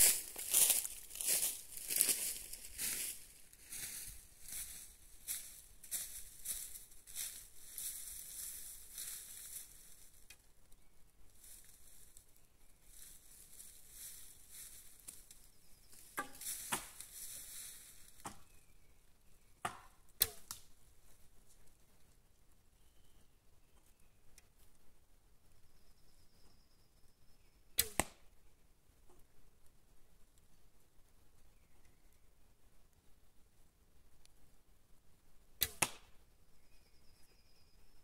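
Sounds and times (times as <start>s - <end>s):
soft rustling: 0.0s - 10.3s, 11.3s - 18.2s
arrows striking target: 16.2s - 17.0s, 19.6s - 20.5s, 27.8s - 28.2s, 35.6s - 36.1s.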